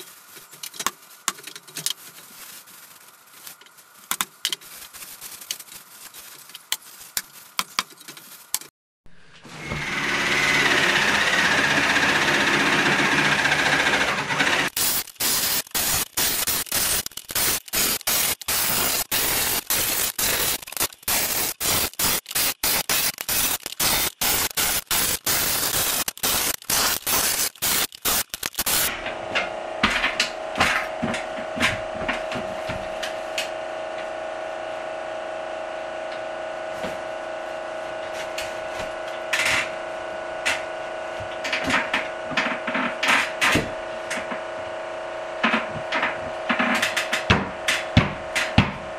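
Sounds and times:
jigsaw cutting plywood: 0:09.5 - 0:33.6
steady hum: 0:11.7 - 0:48.9.

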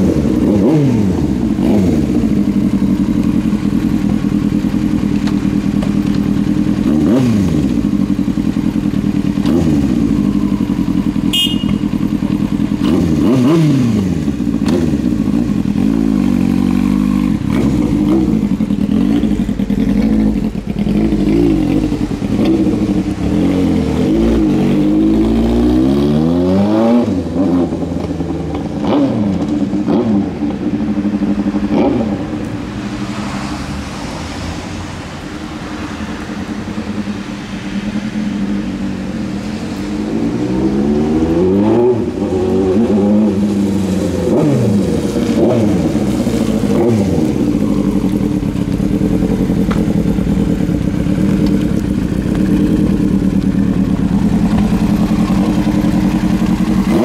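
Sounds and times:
motorcycle engine throttle blips: 0:00.0 - 0:25.3, 0:41.1 - 0:57.0.

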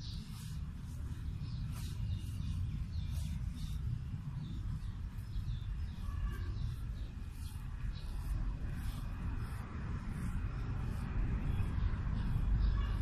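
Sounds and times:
faint high-pitched chirps: 0:00.0 - 0:09.0.

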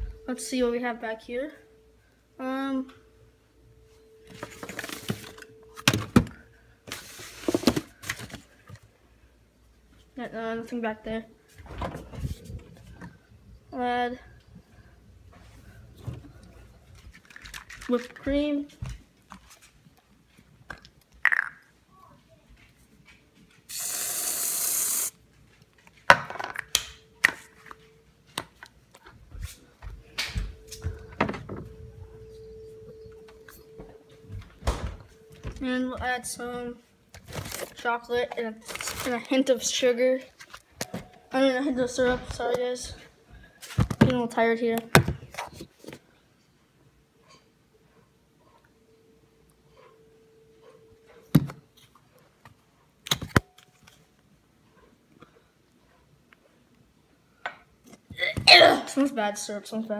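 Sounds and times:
rustling of containers and packages: 0:04.2 - 0:08.9, 0:15.4 - 0:21.3, 0:37.1 - 0:41.3
aerosol can spraying hiss: 0:23.7 - 0:25.1.

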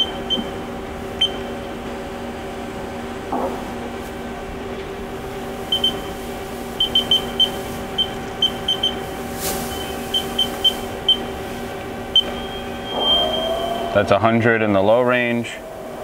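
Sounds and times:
control panel key beeps: 0:05.7 - 0:06.0
spindle high whine: 0:06.8 - 0:16.0
lathe hum: 0:11.8 - 0:16.0.

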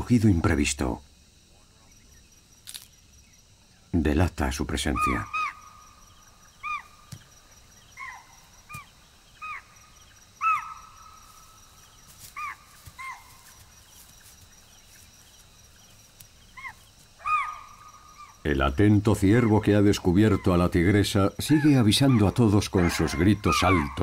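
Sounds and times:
faint insects chirring: 0:00.0 - 0:24.0
deer alarm barks: 0:10.4 - 0:11.2, 0:16.6 - 0:18.4, 0:21.5 - 0:24.0.

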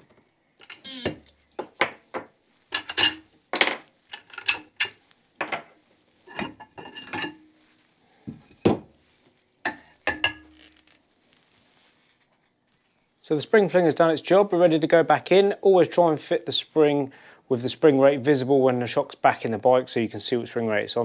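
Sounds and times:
metal clanks and clinks: 0:00.6 - 0:07.4.

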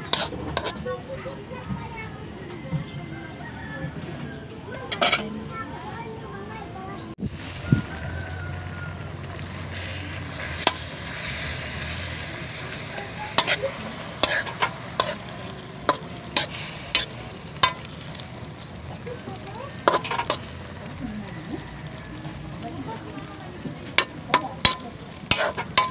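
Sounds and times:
metal spatula scraping wok: 0:00.0 - 0:01.4, 0:04.9 - 0:05.3, 0:07.4 - 0:21.0, 0:23.6 - 0:25.9
food sizzling: 0:00.0 - 0:02.0, 0:07.2 - 0:25.9.

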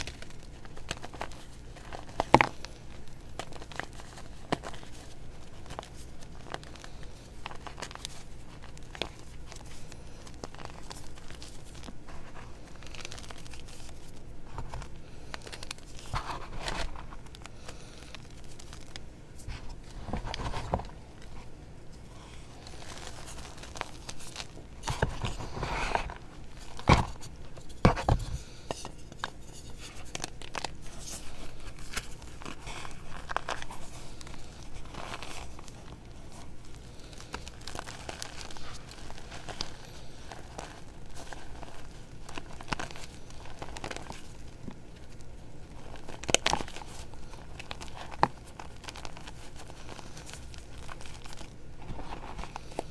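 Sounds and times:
hands crushing chalk: 0:00.0 - 0:21.4, 0:22.2 - 0:52.9.

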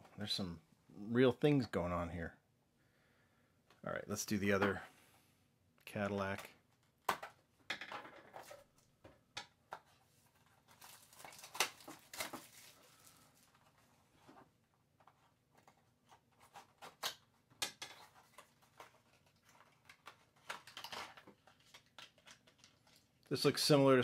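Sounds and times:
packaging crinkling: 0:10.6 - 0:13.7.

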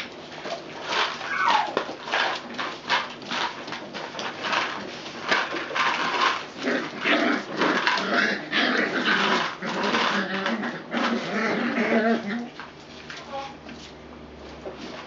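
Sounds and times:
puppy whimpers: 0:01.2 - 0:01.8.

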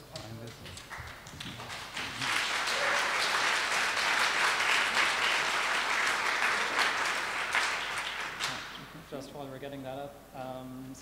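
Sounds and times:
audience applauding: 0:00.6 - 0:08.9.

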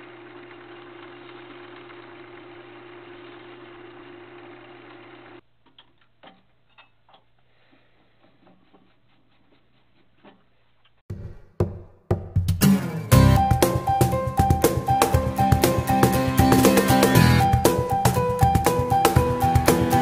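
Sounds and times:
wood lathe motor humming: 0:00.0 - 0:05.4
music: 0:11.2 - 0:20.0.

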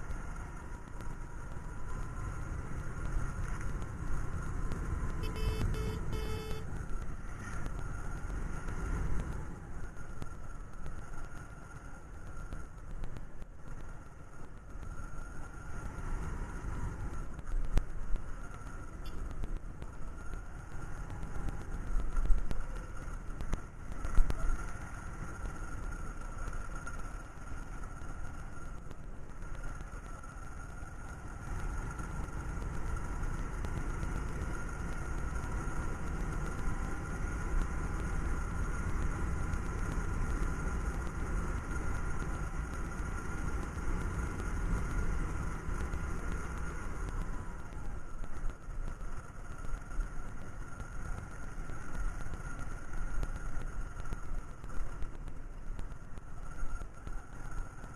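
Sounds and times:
high whine: 0:00.0 - 0:07.8
motorcycle engine running: 0:00.0 - 0:11.2.

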